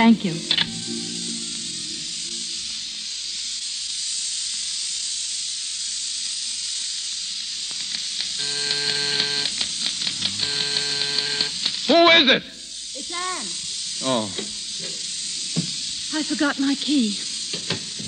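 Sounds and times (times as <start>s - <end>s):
steady hiss: 0.0s - 18.0s
doorbell buzzer: 8.4s - 9.6s, 10.2s - 11.6s.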